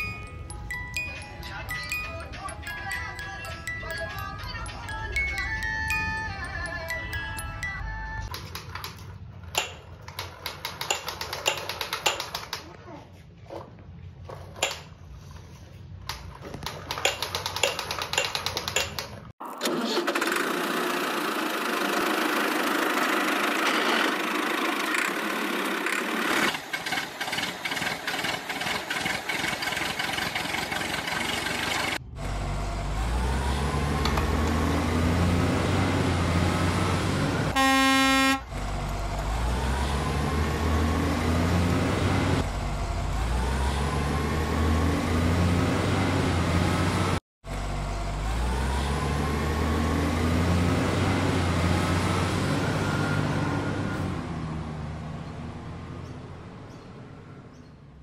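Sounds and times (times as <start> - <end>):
truck engine sound effect: 16.1 - 58.0
plastic toys rattling on tiles: 16.4 - 19.3
horn honk: 37.4 - 38.6.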